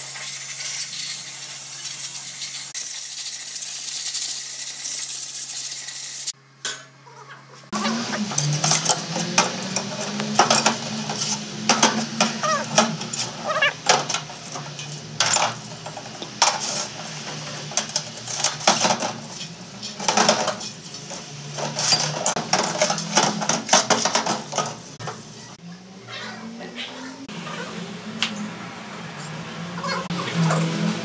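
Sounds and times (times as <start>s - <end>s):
cleaning fluid running: 0.0s - 6.4s, 7.7s - 25.3s
brush scrubbing: 7.6s - 13.8s
metal parts clinking: 8.1s - 17.0s.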